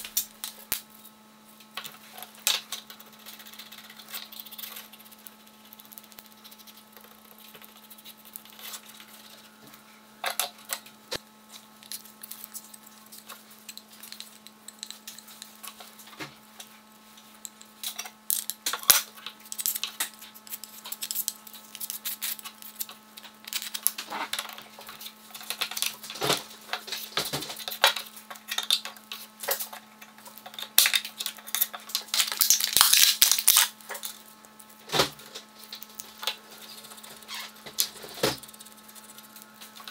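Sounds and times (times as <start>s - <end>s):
steady low hum: 0.0s - 39.9s
clicks taps and scraping: 1.6s - 32.2s
thin sheet crinkling: 30.8s - 34.4s.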